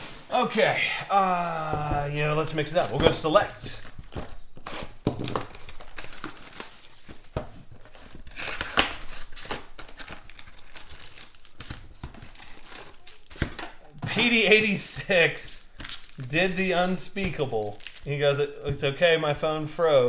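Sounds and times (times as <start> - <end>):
plastic wrap crinkling and tearing: 2.1 - 14.0, 15.6 - 18.6.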